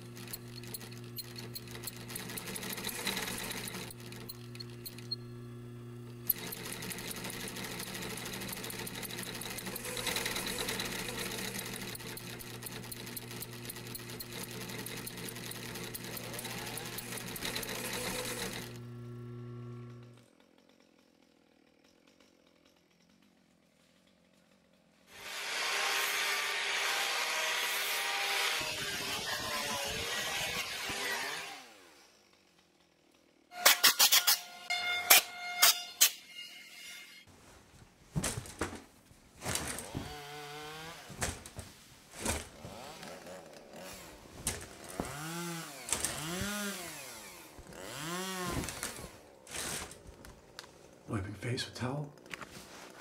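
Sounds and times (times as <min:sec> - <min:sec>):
electric hand tool running: 0:00.0 - 0:21.9, 0:25.1 - 0:32.5, 0:42.9 - 0:50.0
faint workshop background: 0:00.0 - 0:53.0
angle grinder sanding wood: 0:42.6 - 0:49.9.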